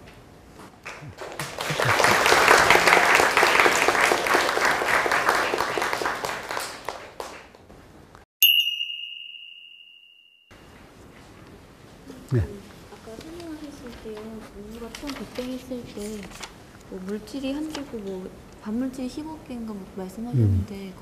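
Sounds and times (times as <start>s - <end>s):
audience applauding: 0.8s - 7.6s
bright ding: 8.4s - 10.8s.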